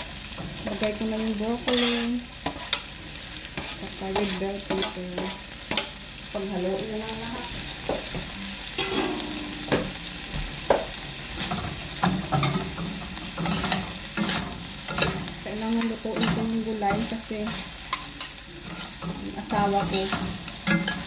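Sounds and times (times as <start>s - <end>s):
food sizzling in oil: 0.0s - 21.0s
metal spatula scraping a wok: 0.6s - 5.9s, 11.4s - 21.0s.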